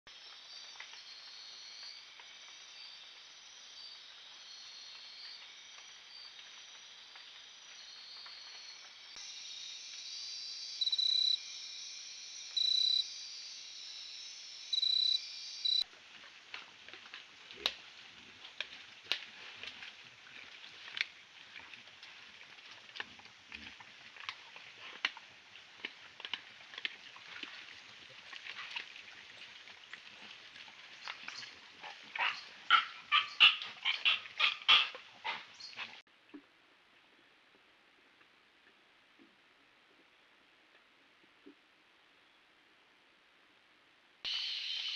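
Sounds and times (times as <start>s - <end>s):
rainforest night chorus: 0.2s - 15.8s, 44.3s - 44.9s
animals foraging in leaf litter: 15.8s - 36.0s.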